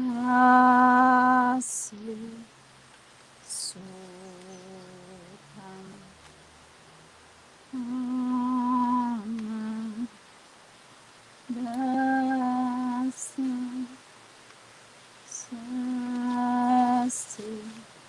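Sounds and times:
woman humming: 0.0 - 2.4, 3.5 - 6.1, 7.7 - 10.2, 11.5 - 14.0, 15.3 - 17.8.

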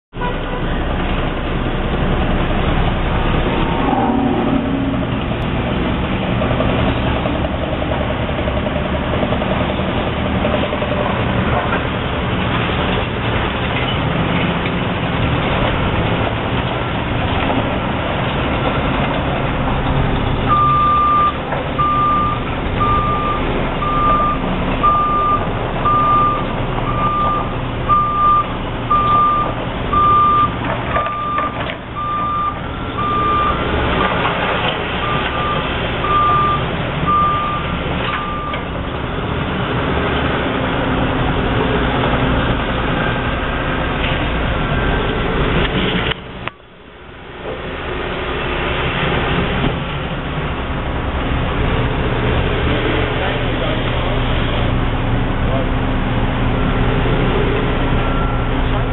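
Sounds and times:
heavy construction machinery running: 0.2 - 58.9
backup alarm beeping: 20.5 - 33.6, 35.0 - 38.6.

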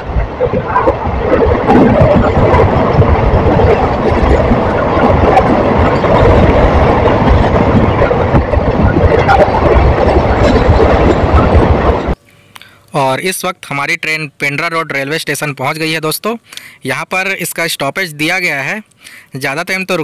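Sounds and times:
train wheels rumbling on track: 0.0 - 12.2.

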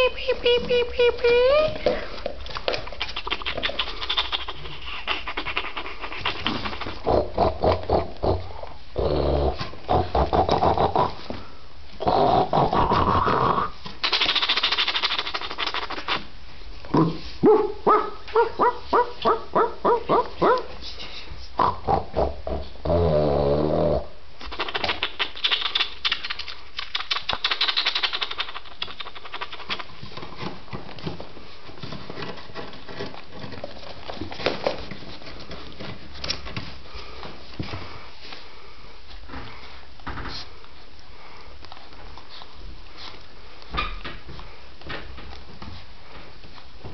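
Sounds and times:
puppy growling: 2.7 - 11.3.

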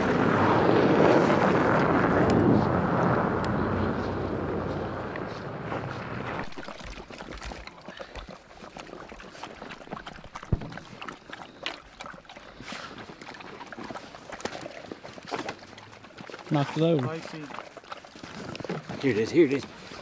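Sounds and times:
pickup truck driving on snow: 0.0 - 6.5.

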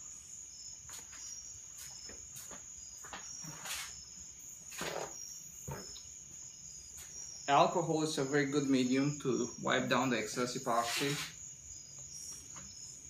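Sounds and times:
paper towel rustling: 10.8 - 11.3.

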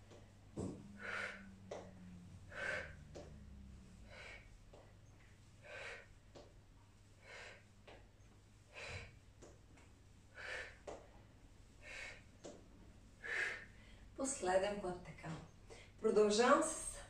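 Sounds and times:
woman exhaling forcefully: 0.8 - 3.2.

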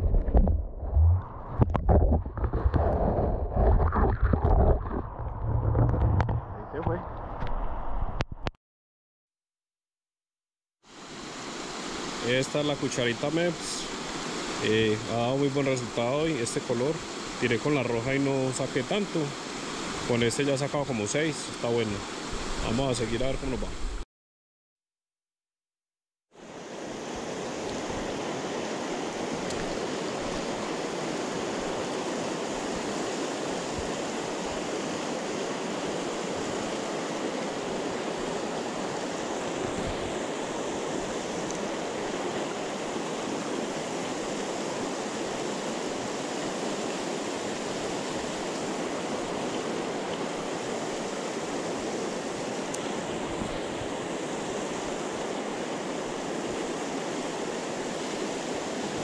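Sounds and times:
river rushing over rapids: 11.0 - 23.9, 26.4 - 59.0.

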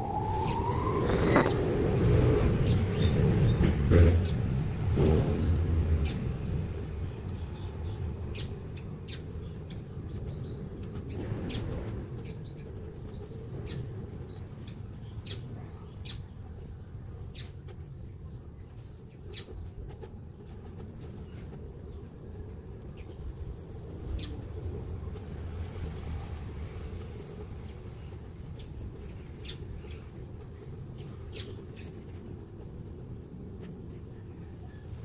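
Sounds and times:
low background hum: 0.0 - 35.0
pencil sketching on paper: 10.0 - 15.6, 16.5 - 22.1, 22.9 - 34.4.

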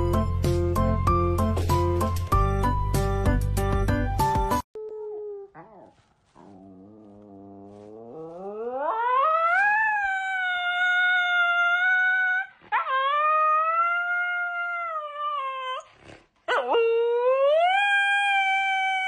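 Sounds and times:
dog howling: 4.8 - 15.9.

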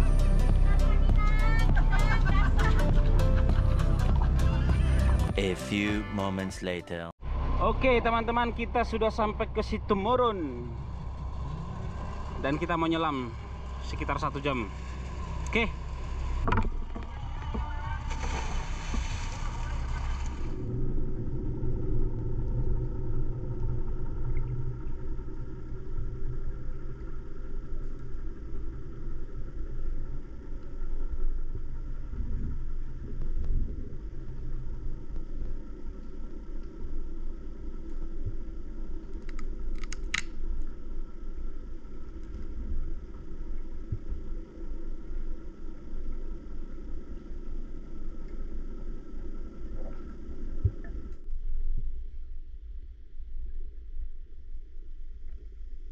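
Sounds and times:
muffled underwater rumble: 0.0 - 5.5, 7.2 - 55.9
faint hum: 0.0 - 55.9.

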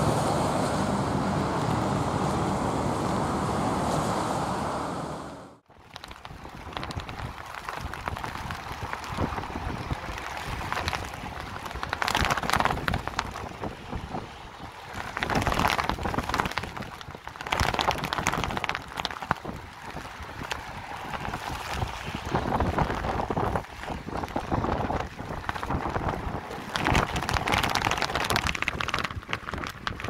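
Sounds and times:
rain ticking on umbrella: 5.7 - 30.0
storm wind gusts: 6.2 - 30.0.

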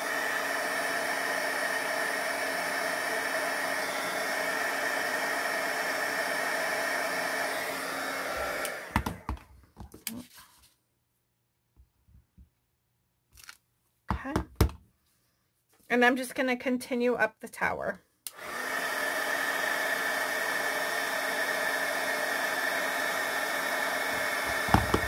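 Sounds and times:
heat gun blowing: 0.0 - 9.4, 18.3 - 25.0.

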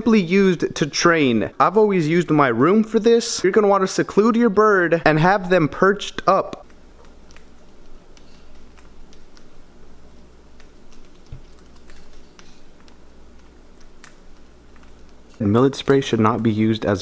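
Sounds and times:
bird beak clicking on seeds: 6.6 - 16.2.

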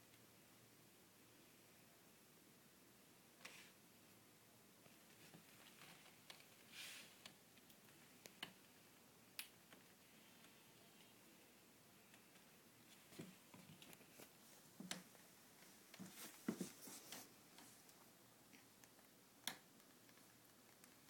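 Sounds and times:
room hiss: 0.0 - 21.0
soft handling clicks and rustles: 4.8 - 8.7, 12.0 - 19.1.

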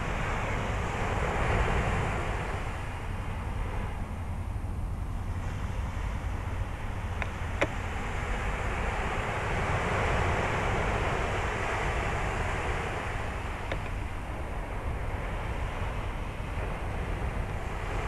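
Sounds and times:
surf washing onto beach: 0.0 - 18.0
wind rumble on microphone: 0.0 - 18.0.

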